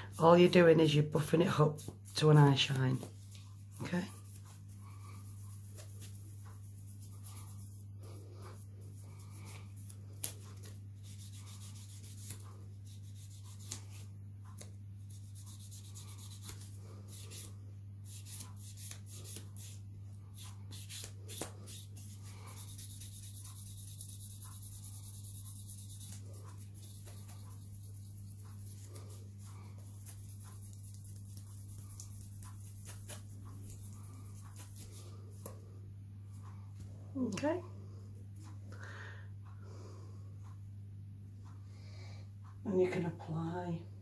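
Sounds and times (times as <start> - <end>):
steady low hum: 0.0 - 44.0
nail buffer scratching strokes: 3.3 - 35.6.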